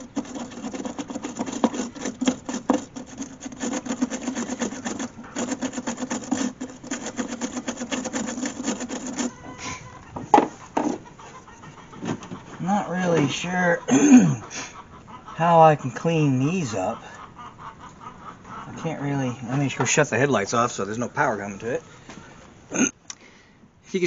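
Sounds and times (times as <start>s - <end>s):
wire brush scrubbing plug: 0.0s - 9.3s.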